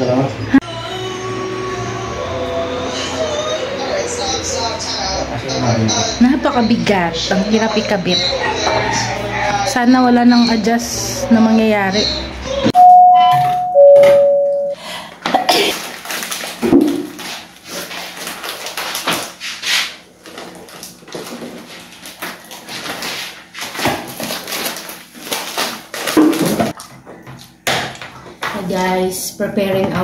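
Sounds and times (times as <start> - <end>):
two-note ding-dong chime: 12.8 - 14.8.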